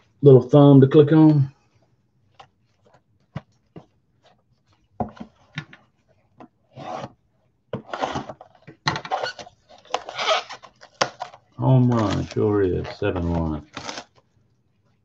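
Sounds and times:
card packs rustling: 9.2s - 14.3s.

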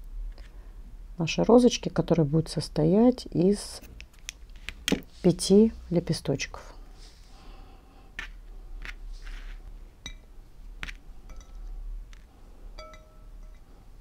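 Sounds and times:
ribbon rustling: 8.2s - 9.8s.

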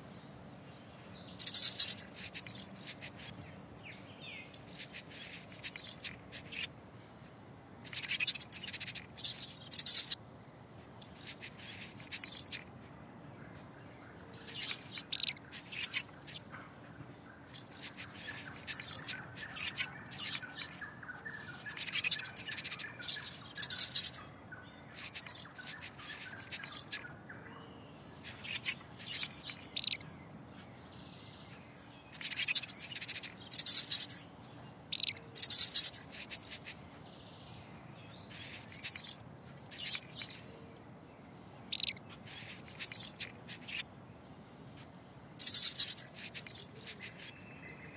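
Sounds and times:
faint woodland background: 0.0s - 47.9s
high-pitched chirps and squeaks: 1.4s - 3.4s, 4.5s - 6.7s, 7.8s - 10.2s, 11.0s - 12.7s, 14.4s - 16.4s, 17.5s - 20.9s, 21.7s - 24.2s, 25.0s - 27.1s, 28.2s - 30.0s, 32.1s - 34.2s, 34.9s - 36.9s, 38.3s - 40.5s, 41.7s - 43.9s, 45.4s - 47.4s.

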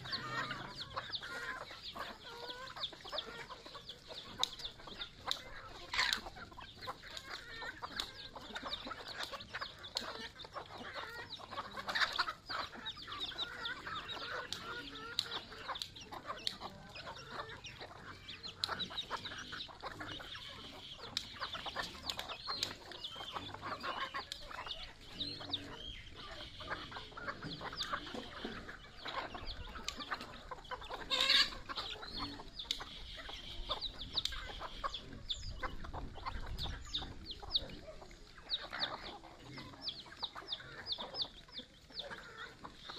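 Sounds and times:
beaks tapping on concrete: 0.0s - 42.9s
chickens clucking: 0.0s - 42.9s
high chirping calls: 0.0s - 42.9s.

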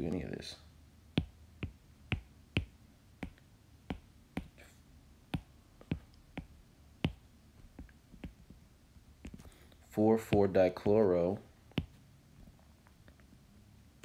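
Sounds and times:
stylus tapping on glass screen: 1.2s - 4.6s, 5.4s - 8.4s.

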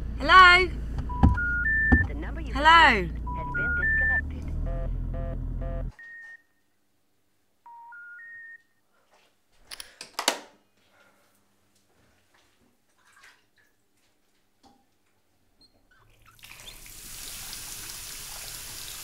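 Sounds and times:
telephone special information tone: 1.1s - 2.2s, 3.2s - 6.5s.

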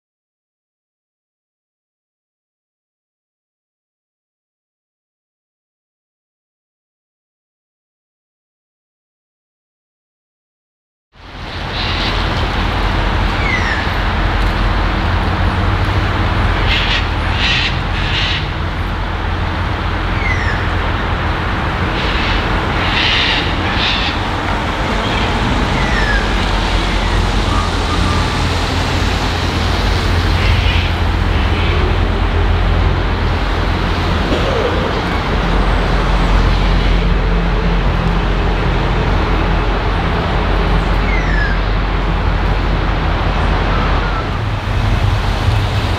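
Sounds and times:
diesel locomotive engine running: 11.2s - 45.9s
birds chirping: 11.6s - 14.3s, 16.4s - 19.0s, 20.0s - 20.9s, 21.9s - 28.6s, 30.2s - 32.2s, 34.1s - 37.1s.

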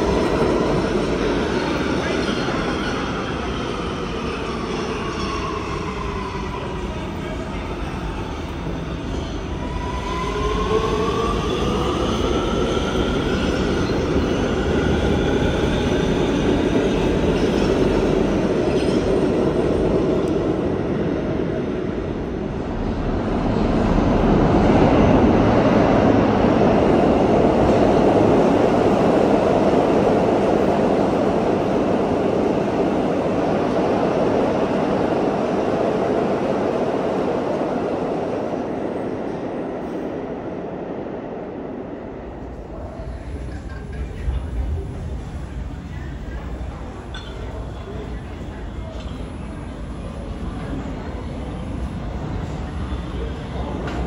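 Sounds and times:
subway train propulsion whine: 0.0s - 54.0s
train wheels rumbling on rails: 41.2s - 54.0s.

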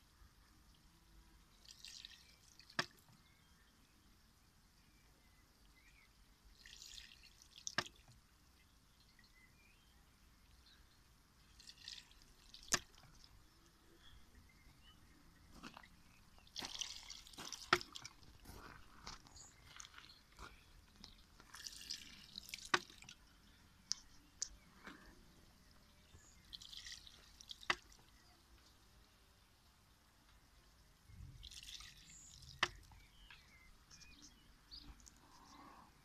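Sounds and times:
water trickling: 0.5s - 3.3s, 5.5s - 28.4s, 30.6s - 35.6s
water splashing from bamboo tube: 1.6s - 3.1s, 6.5s - 8.2s, 11.5s - 13.4s, 15.8s - 18.4s, 21.0s - 23.3s, 26.4s - 28.2s, 31.4s - 33.0s.

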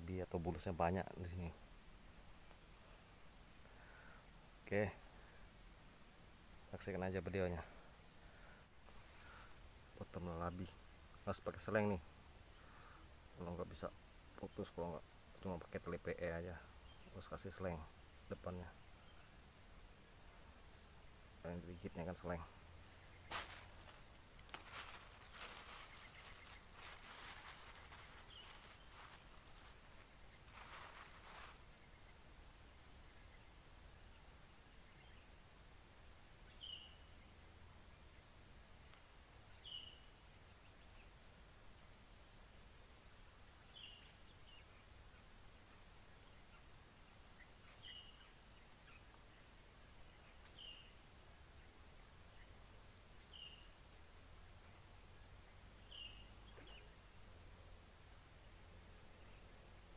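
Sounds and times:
insect chirps: 0.0s - 59.9s
high-pitched insect drone: 20.3s - 37.6s
rustling handling noise: 23.3s - 31.8s.

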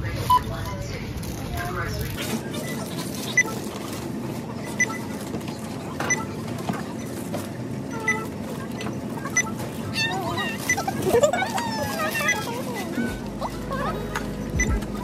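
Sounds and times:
shop background hum: 0.0s - 15.0s
barcode scanner beeping: 2.5s - 4.0s, 4.6s - 7.3s, 7.9s - 15.0s.

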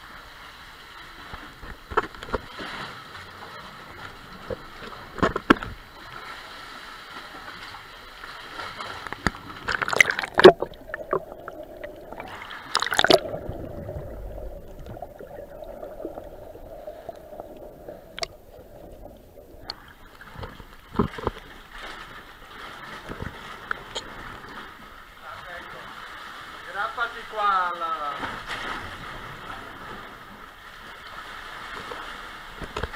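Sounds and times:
seawater sloshing and splashing: 0.0s - 32.9s
muffled underwater sound: 9.0s - 21.7s.

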